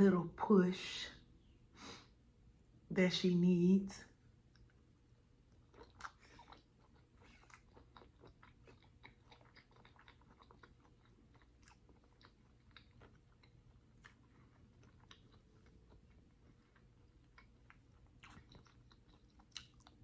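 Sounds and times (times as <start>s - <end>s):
close-miked chewing: 4.4s - 20.0s.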